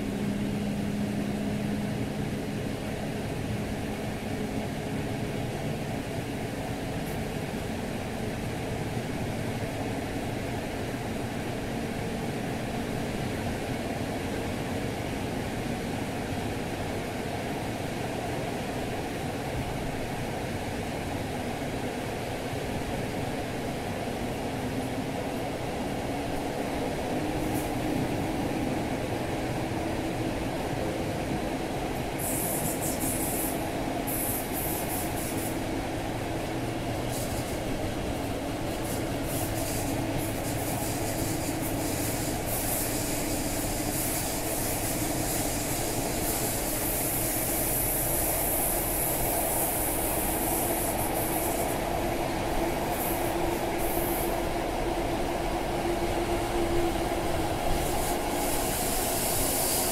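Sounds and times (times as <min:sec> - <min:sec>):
train wheels rumbling on rails: 0:00.0 - 0:59.9
rushing air: 0:32.2 - 0:59.9
bursts of high hiss: 0:57.4 - 0:59.9.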